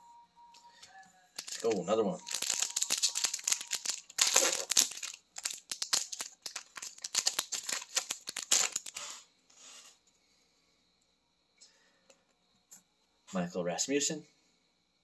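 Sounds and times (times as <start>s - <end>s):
cards rustling: 1.4s - 9.2s
wrapper tearing and crinkling: 1.4s - 9.2s.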